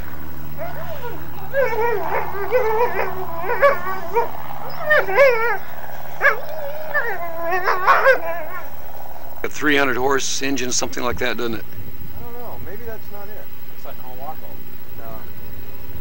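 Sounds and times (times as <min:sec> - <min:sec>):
dog whining and yipping: 0:00.6 - 0:08.9.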